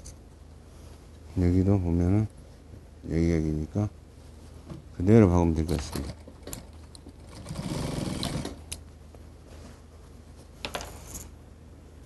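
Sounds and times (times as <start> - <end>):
sewing machine stitching: 7.2 - 8.6.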